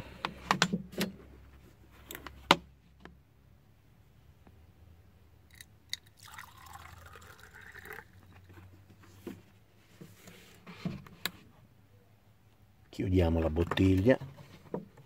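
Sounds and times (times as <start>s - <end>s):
water pouring into a mug: 5.5s - 8.3s.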